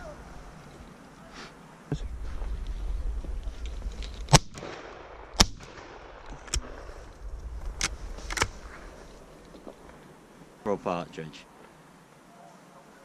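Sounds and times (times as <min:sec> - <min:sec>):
shotgun shots: 0:04.3 - 0:06.8.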